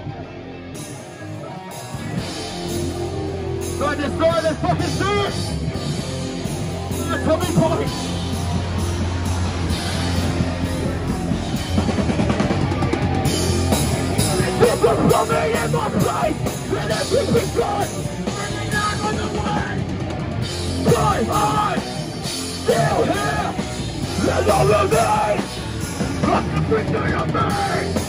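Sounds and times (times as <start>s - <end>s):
distorted guitars: 0.0s - 28.0s
drum kit: 0.7s - 28.0s
shouted vocals: 6.6s - 19.9s, 20.7s - 28.0s.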